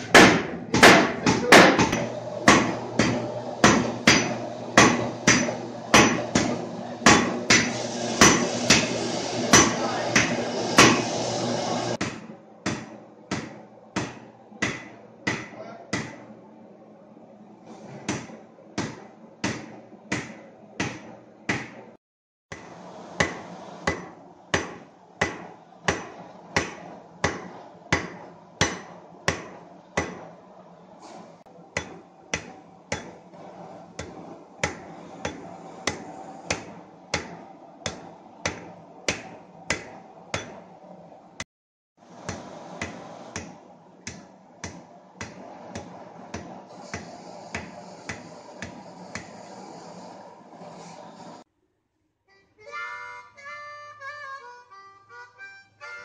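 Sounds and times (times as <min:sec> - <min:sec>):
hammers striking steel on anvil: 0:00.0 - 0:11.1, 0:12.0 - 0:16.3, 0:18.0 - 0:30.4, 0:31.8 - 0:33.3, 0:34.0 - 0:40.7, 0:42.2 - 0:49.4
gas forge roaring: 0:00.0 - 0:51.5.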